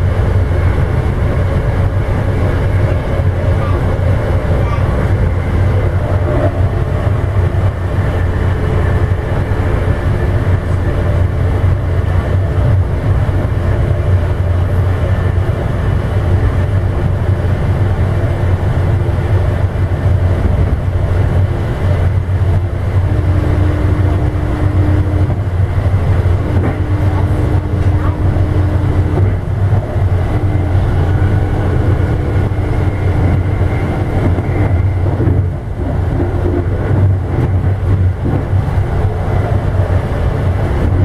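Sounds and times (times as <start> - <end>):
train wheels rumbling on rail: 0.0 - 41.0
steady tone: 21.2 - 41.0.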